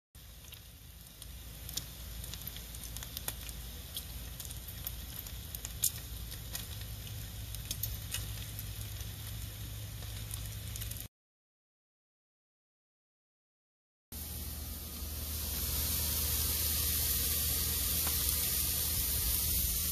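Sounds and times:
bacon sizzling: 0:00.2 - 0:11.1, 0:14.2 - 0:19.9
fat popping and crackling: 0:00.2 - 0:11.1, 0:17.0 - 0:19.9
low steady rumble: 0:00.2 - 0:11.1, 0:14.1 - 0:19.9.

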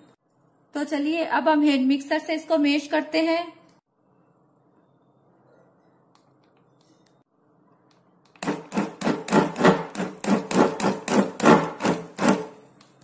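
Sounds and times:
electric hand blender pulsing: 0:08.4 - 0:12.5.

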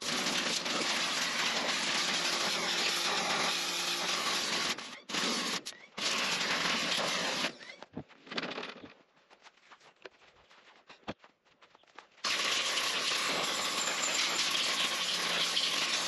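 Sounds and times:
pressure washer spraying: 0:00.0 - 0:07.5, 0:12.2 - 0:16.0.

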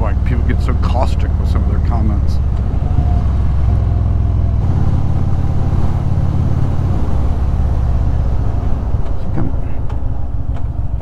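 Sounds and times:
motorcycle engine running: 0:00.0 - 0:11.0
wind noise on microphone: 0:02.4 - 0:09.4.

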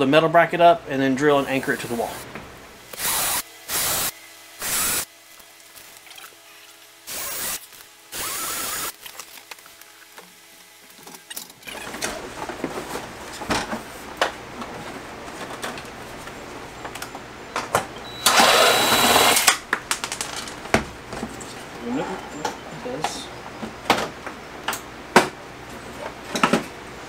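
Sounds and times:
cordless drill running: 0:02.9 - 0:05.1, 0:07.1 - 0:09.0, 0:18.2 - 0:19.5.

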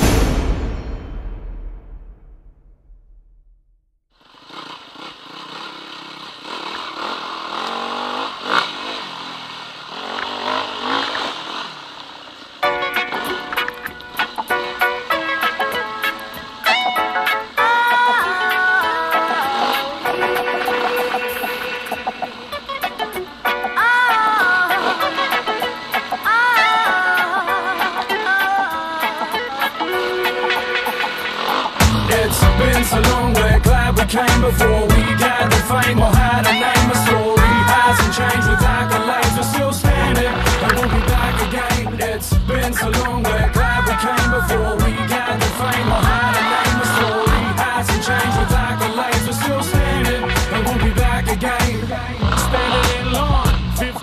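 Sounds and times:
background music: 0:00.0 - 0:02.5, 0:12.6 - 0:54.0
sharp knock: 0:00.0 - 0:03.4
motorbike engine revving: 0:04.2 - 0:54.0.

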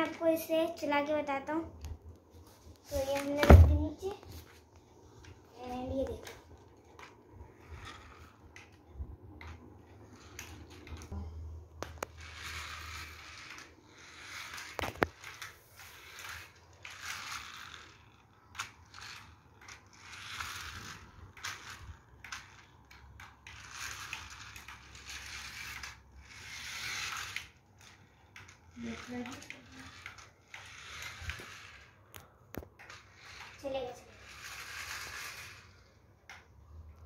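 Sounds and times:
toy electric motor whirring: 0:00.0 - 0:37.0.

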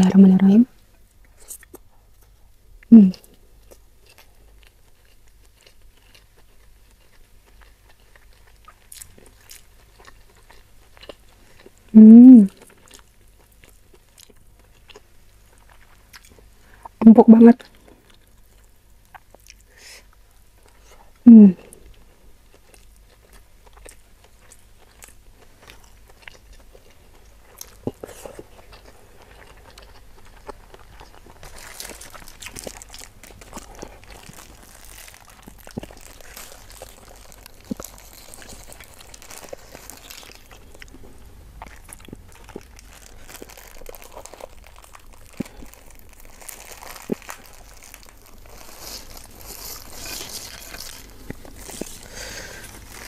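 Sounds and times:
chewing mouth sounds: 0:22.5 - 0:53.0
plastic bag crinkling: 0:31.0 - 0:41.0, 0:41.7 - 0:53.0.

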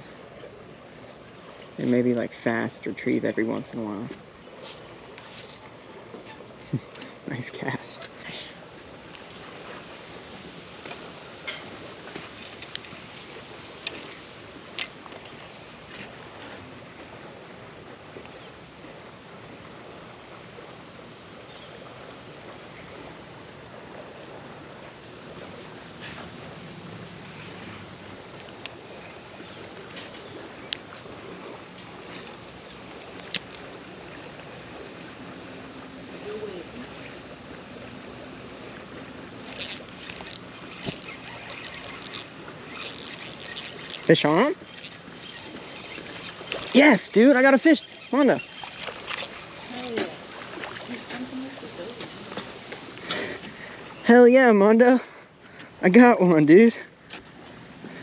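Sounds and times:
outdoor background noise: 0:00.0 - 0:58.0
fishing reel clicking: 0:32.0 - 0:34.4, 0:39.4 - 0:50.1.

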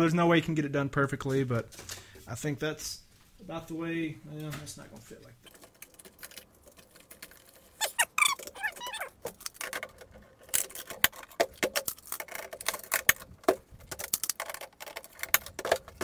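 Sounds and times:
knocks and clicks of handled cans: 0:05.4 - 0:16.0
cardboard squeak: 0:07.8 - 0:09.3.

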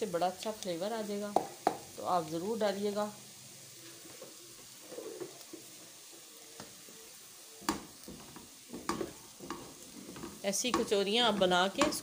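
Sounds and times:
food sizzling in a pot: 0:00.0 - 0:12.0
spatula scraping a pot: 0:04.8 - 0:05.4.

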